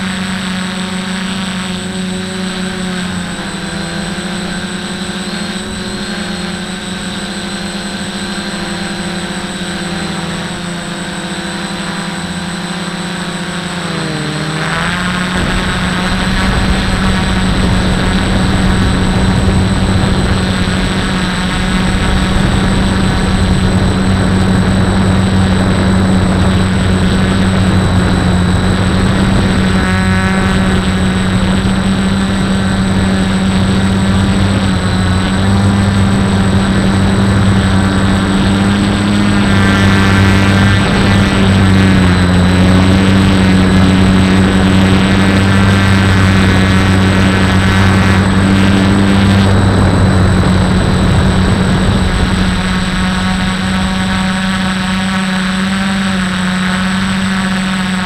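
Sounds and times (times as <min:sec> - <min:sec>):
drone propellers whirring: 0:00.0 - 0:58.0.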